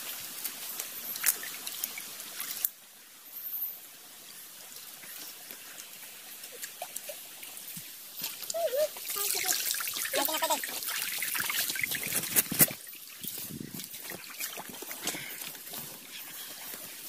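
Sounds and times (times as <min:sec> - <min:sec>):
stream trickling: 0:00.0 - 0:17.0
hands splashing in water: 0:08.2 - 0:15.7.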